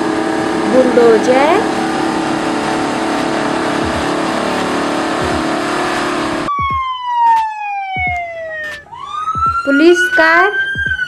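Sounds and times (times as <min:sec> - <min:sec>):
heavy engine running: 0:00.0 - 0:06.5
police siren wailing: 0:00.0 - 0:11.0.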